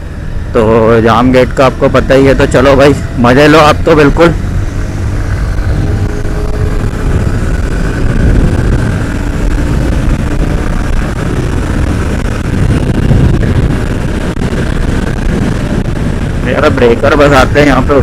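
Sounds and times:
motorcycle engine cruising: 0.0s - 18.0s
wind rumble on microphone: 0.0s - 18.0s.

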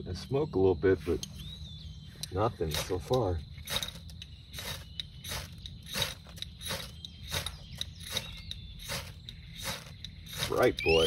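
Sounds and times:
knife scraping bark: 3.6s - 11.0s.

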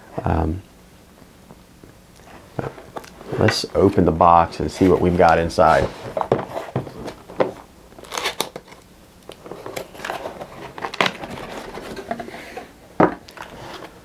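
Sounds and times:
cardboard rustling and scraping: 2.3s - 8.8s, 9.4s - 14.0s.

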